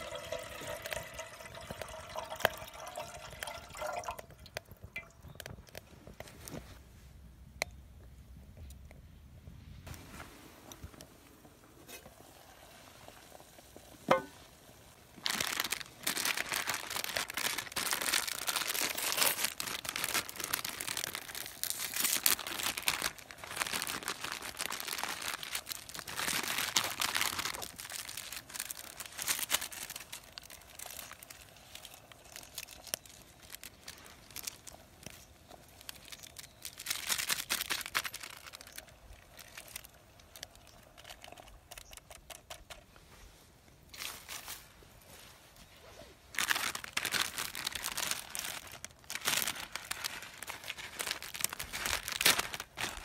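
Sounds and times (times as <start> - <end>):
plastic packet crinkling and tearing: 15.0 - 42.8, 43.9 - 44.7, 46.3 - 53.0.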